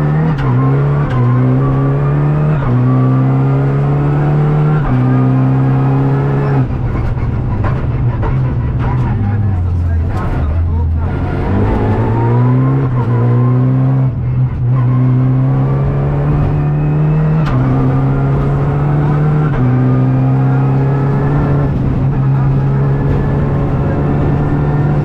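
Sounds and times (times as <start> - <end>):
car engine at full throttle: 0.0 - 25.0.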